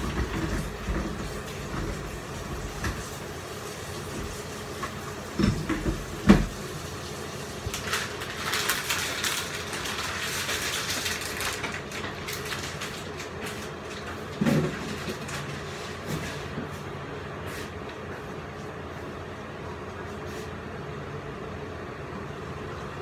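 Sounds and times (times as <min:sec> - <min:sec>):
gas stove rumble: 0:00.0 - 0:18.2.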